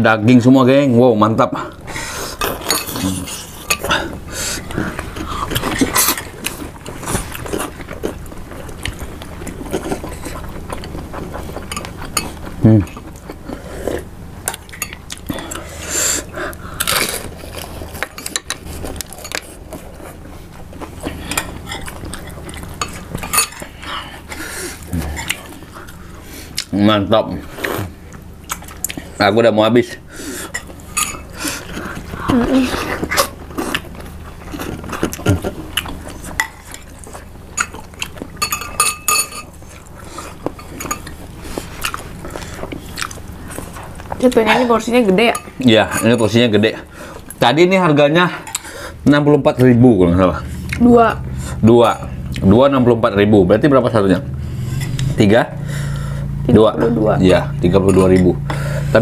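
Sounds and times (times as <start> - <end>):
cutlery clinking on ceramic bowls: 2.4 - 3.0, 30.6 - 31.3, 38.4 - 39.6, 40.5 - 41.2
spoons clinking against bowls: 30.5 - 31.3, 38.4 - 39.6, 57.8 - 58.5.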